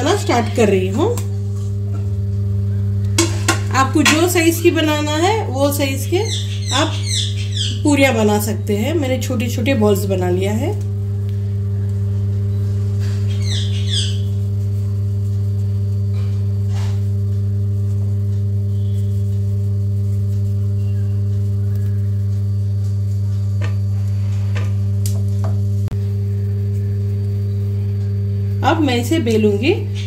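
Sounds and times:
low electrical hum: 0.0s - 30.0s
high chirping: 6.0s - 7.9s, 12.5s - 14.4s.

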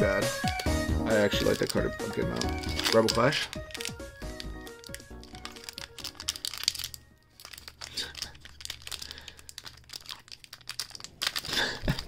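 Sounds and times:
foil pack crinkling: 0.1s - 12.0s.

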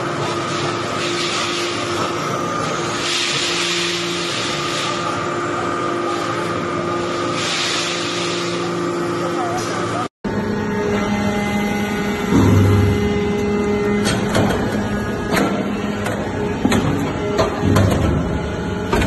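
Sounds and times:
press machine hum and whine: 0.0s - 19.0s.

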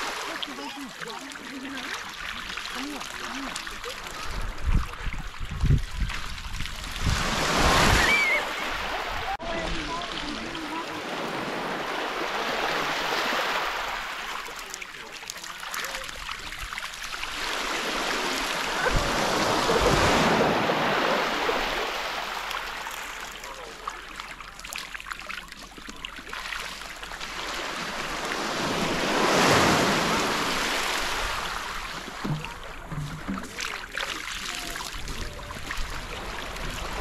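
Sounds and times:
surf washing up gravel beach: 6.4s - 16.2s, 17.1s - 23.8s, 27.0s - 37.0s.

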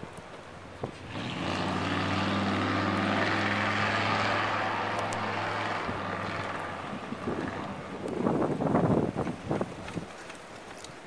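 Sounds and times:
road hiss: 0.0s - 9.2s
vehicle engine drone: 0.9s - 9.2s.

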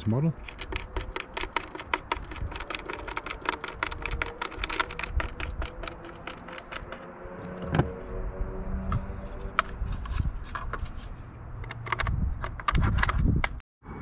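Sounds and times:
hard plastic clicking: 0.4s - 7.0s.

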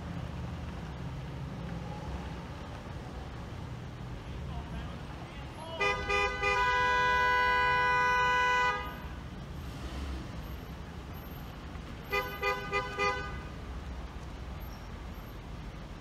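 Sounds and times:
low traffic rumble: 0.0s - 16.0s
car horn honking: 5.6s - 9.0s, 12.1s - 13.5s.

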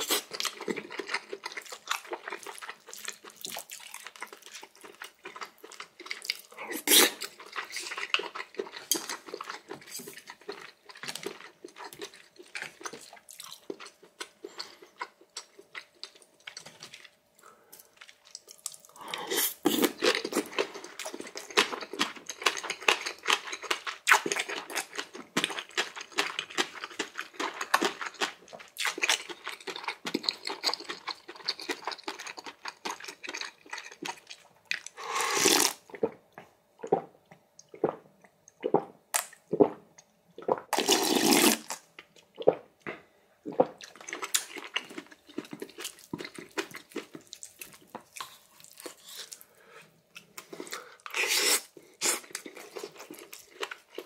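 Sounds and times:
wet chewing and slurping: 0.0s - 17.2s, 40.4s - 54.0s.

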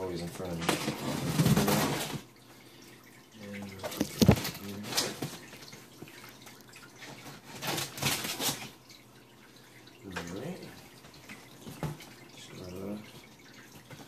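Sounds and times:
cardboard rustling: 3.8s - 5.4s
cardboard box knocks and clatter: 4.0s - 4.6s.

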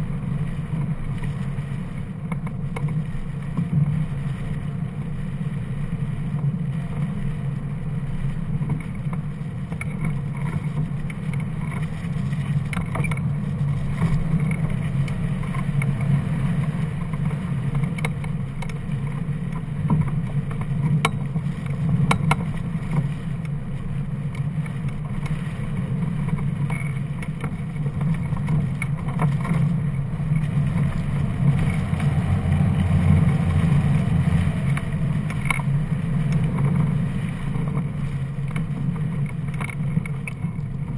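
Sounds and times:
wind buffeting camera: 8.3s - 40.9s
faint ticks: 8.6s - 40.9s.

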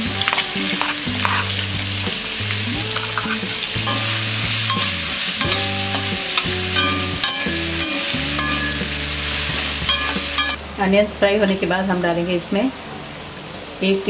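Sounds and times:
onions sizzling in hot oil: 0.0s - 10.6s
spatula scraping pan: 0.0s - 10.6s
low steady tones: 0.0s - 14.0s.

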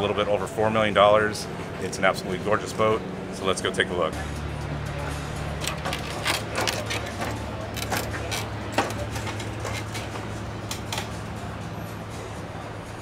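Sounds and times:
footsteps on ladder and deck: 5.6s - 11.1s.

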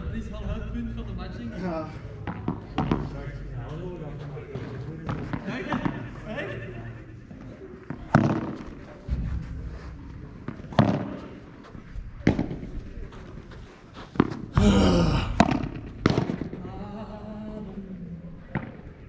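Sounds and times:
voices: 0.0s - 19.0s
padel ball struck with rackets: 10.5s - 11.2s, 15.4s - 16.6s.

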